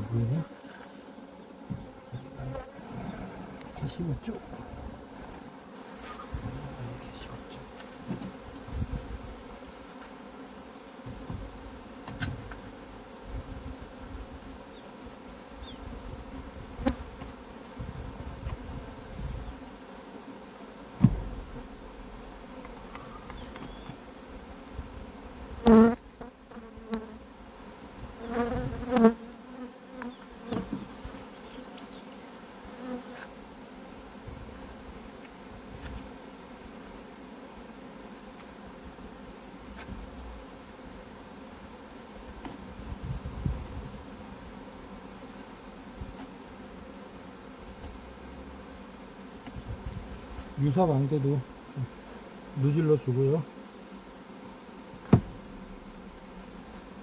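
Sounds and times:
honeybees buzzing: 0.0s - 57.0s
wooden hive frames knocking: 1.6s - 2.6s, 11.0s - 12.6s, 21.0s - 21.7s, 29.9s - 31.0s, 55.0s - 55.7s.

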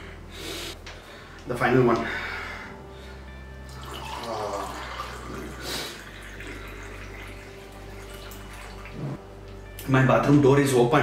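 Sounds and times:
water pouring into a mug: 3.7s - 9.1s.

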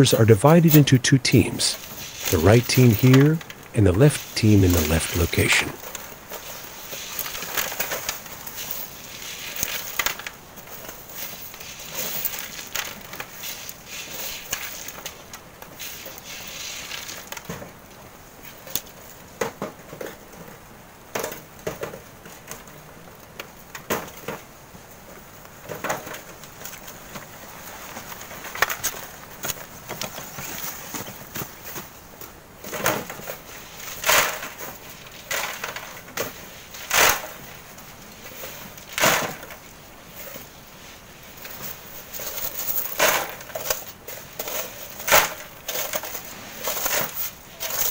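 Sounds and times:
shovels scraping sand and gravel: 1.8s - 5.4s
wheelbarrows rattling over stones: 4.2s - 17.5s, 32.6s - 47.9s.

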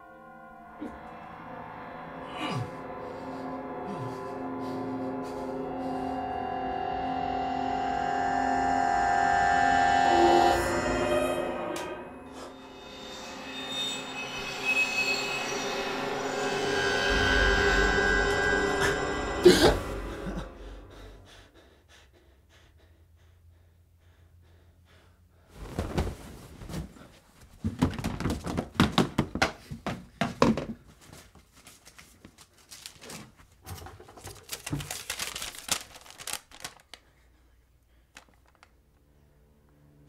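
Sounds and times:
rummaging with knocks and thuds: 25.7s - 35.4s
paper crinkling: 31.0s - 37.1s, 38.1s - 38.8s.

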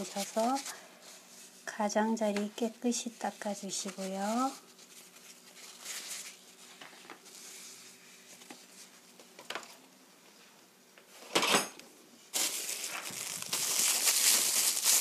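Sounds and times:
plastic bag rustling: 0.0s - 1.6s, 3.6s - 9.0s, 12.3s - 15.0s.

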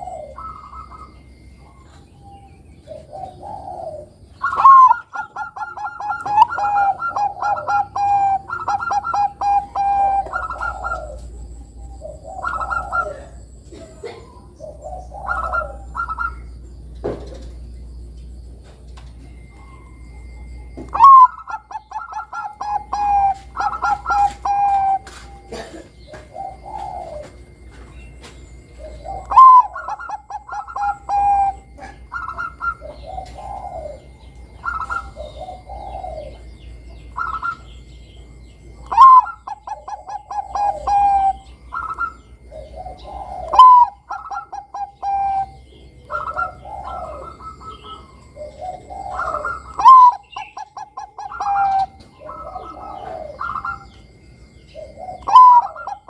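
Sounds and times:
dove singing and cooing: 0.0s - 56.0s.

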